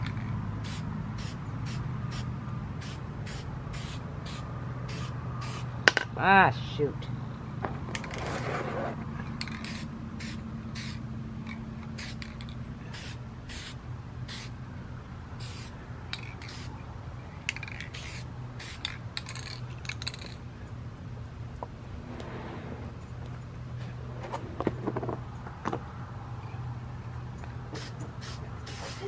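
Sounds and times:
steady low hum: 0.0 - 29.0
spray can hissing bursts: 0.6 - 5.7, 9.4 - 11.0, 12.0 - 14.6, 15.4 - 16.7, 17.5 - 19.6, 27.8 - 29.0.

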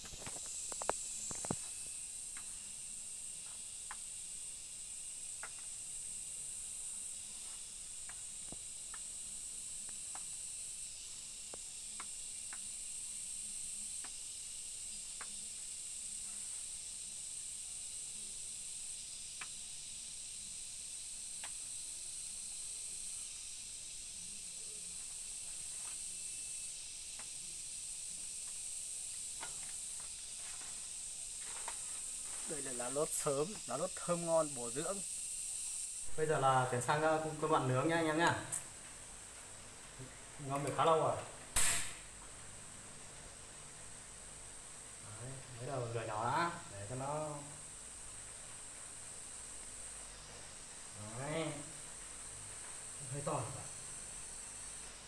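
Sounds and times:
high-pitched insect chorus: 0.0 - 55.0
leaves snapped off by hand: 41.5 - 42.1.

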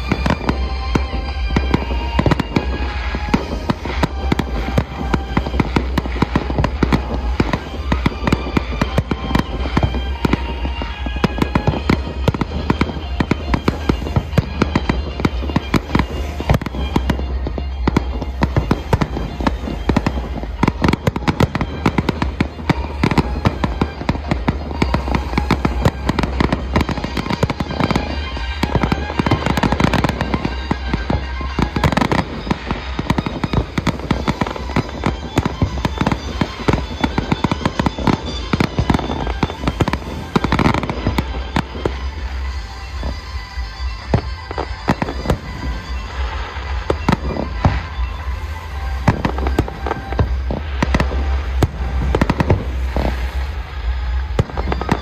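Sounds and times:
firework bursts and crackling: 0.0 - 55.0
music playing: 0.0 - 55.0.

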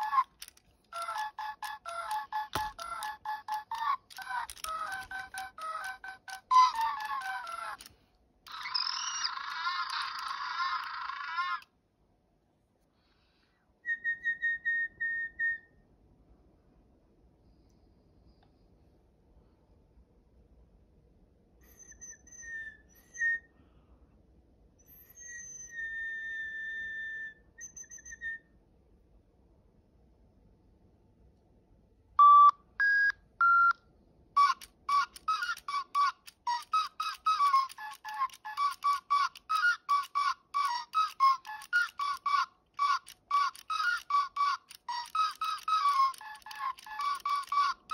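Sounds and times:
electronic toy penguin chirping: 0.0 - 7.9, 8.5 - 11.6, 24.8 - 28.4, 34.4 - 47.9.

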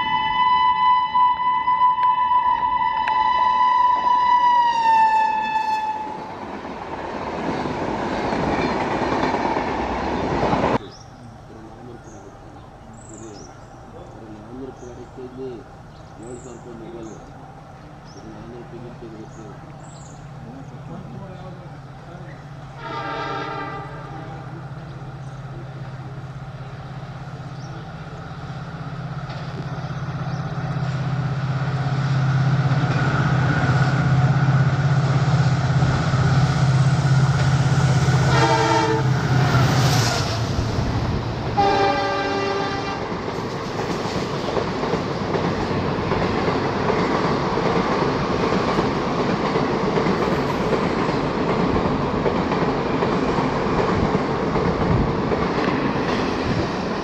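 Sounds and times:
train horn blasts: 0.0 - 6.4, 22.7 - 24.5, 38.0 - 40.4, 41.6 - 43.1
diesel locomotive engine drone: 0.0 - 57.0
train wheels clattering on rails: 5.9 - 10.9, 29.0 - 57.0.

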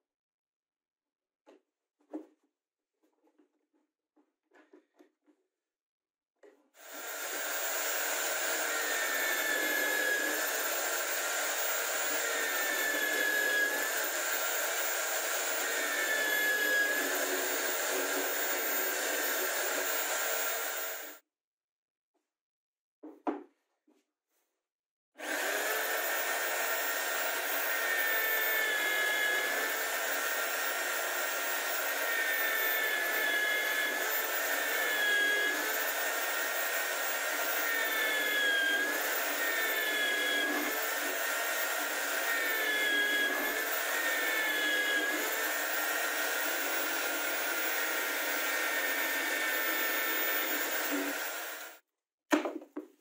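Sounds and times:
drill bit boring into wood: 6.8 - 21.2, 25.2 - 51.8
drill press motor whining: 6.8 - 21.2, 25.2 - 51.8.

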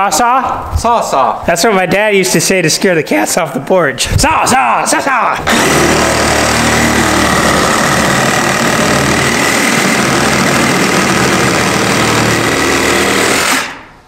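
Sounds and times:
reciprocating saw cutting wood: 5.5 - 13.9.

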